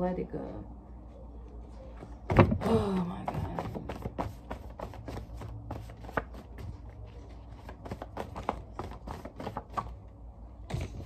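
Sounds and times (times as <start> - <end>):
paper rustling: 3.3 - 10.0.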